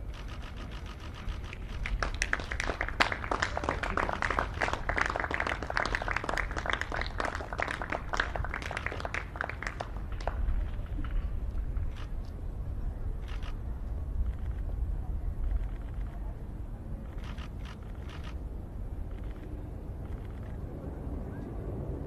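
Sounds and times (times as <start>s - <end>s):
camera shutters clicking: 0.1s - 2.0s, 17.1s - 18.4s.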